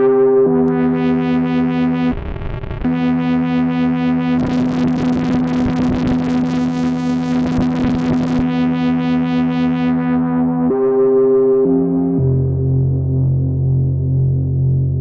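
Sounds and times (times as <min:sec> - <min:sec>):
synthesizer sustained buzzy note: 0:00.0 - 0:15.0
gritty synthesizer noise: 0:00.6 - 0:15.0.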